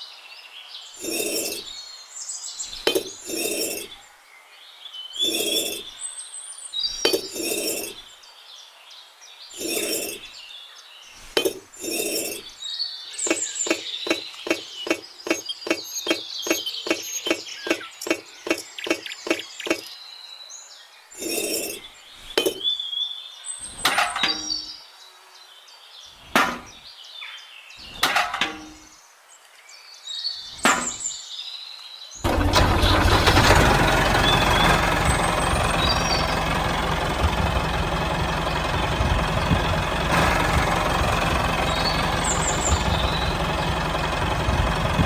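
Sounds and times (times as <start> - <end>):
birds chirping: 0.0 - 45.0
toy bricks clinking and tapping: 1.0 - 1.6, 2.9 - 3.9, 5.3 - 5.8, 7.1 - 8.0, 9.6 - 10.2, 11.4 - 12.4.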